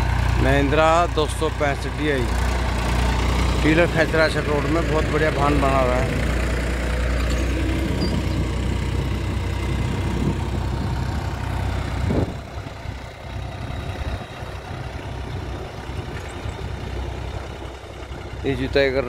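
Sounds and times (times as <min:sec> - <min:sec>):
tractor diesel engine under load: 0:00.0 - 0:19.0.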